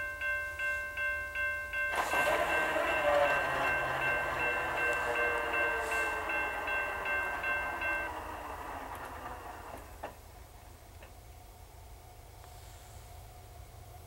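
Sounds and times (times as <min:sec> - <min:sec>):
railroad crossing bell dinging: 0:00.0 - 0:10.2
diesel locomotives running: 0:01.7 - 0:14.0.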